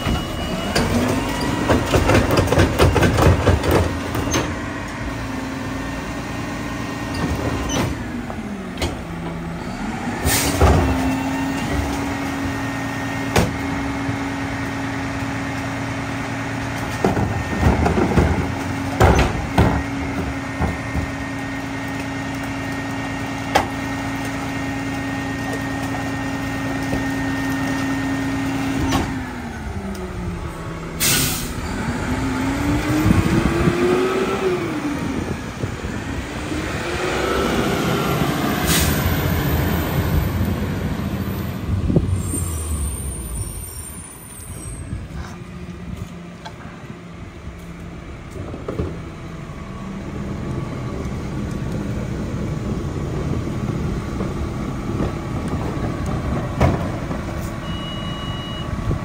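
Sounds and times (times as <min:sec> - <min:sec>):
diesel truck engine revving: 0:03.3 - 0:44.1
air brake hisses: 0:31.0 - 0:31.6.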